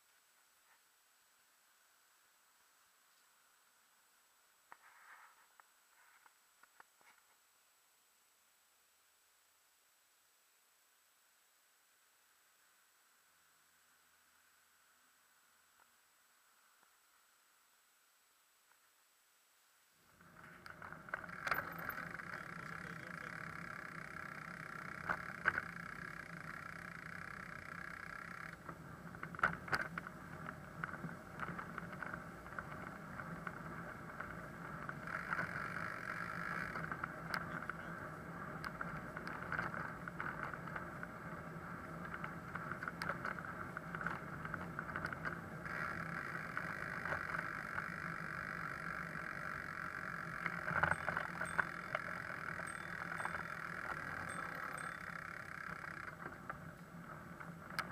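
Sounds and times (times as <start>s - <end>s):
bicycle rattling over brick paving: 20.2s - 57.9s.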